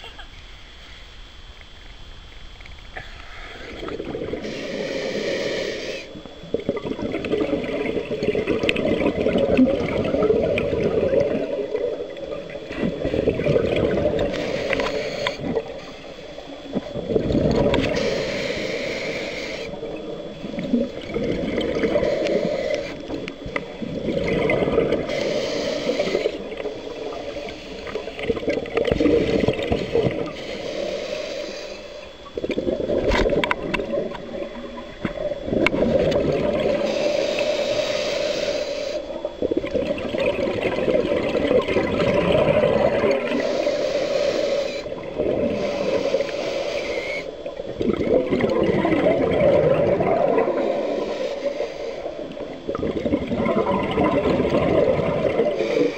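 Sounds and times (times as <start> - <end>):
exhaled air bubbling: 2.7 - 55.9
regulator inhalation hiss: 3.0 - 7.4, 10.1 - 34.4, 35.5 - 39.5, 42.0 - 47.6, 49.4 - 52.9, 54.0 - 55.9.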